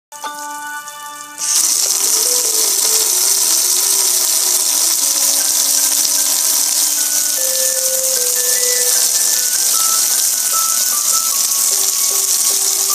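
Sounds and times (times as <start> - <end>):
simple tune of single notes: 0.1 - 1.4, 7.0 - 12.9
water spraying over metal grill: 0.2 - 12.9.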